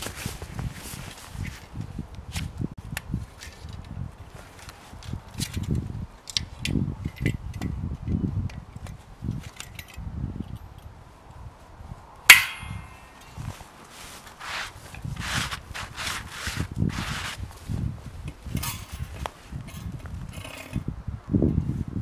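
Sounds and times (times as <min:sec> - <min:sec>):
sharp metallic clang of saw: 0:12.3 - 0:13.3.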